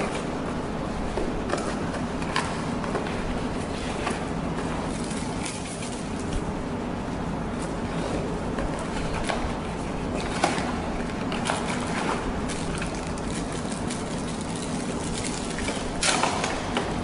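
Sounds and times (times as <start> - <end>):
background hum: 0.0 - 17.0
plastic bag crinkle: 12.5 - 16.0.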